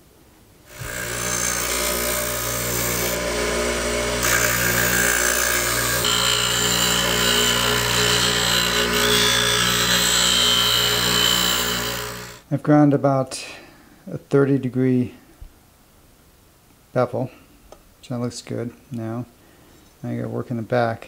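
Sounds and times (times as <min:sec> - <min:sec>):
bench grinder motor humming: 0:00.7 - 0:12.4.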